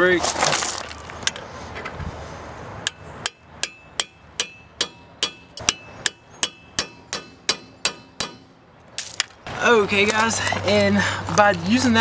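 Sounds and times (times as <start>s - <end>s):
hammer striking metal driver: 2.8s - 8.6s.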